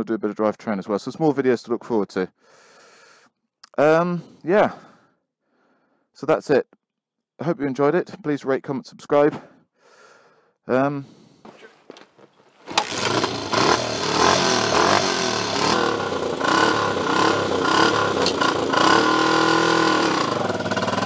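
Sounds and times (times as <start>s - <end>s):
motorcycle engine revving: 12.6s - 21.0s.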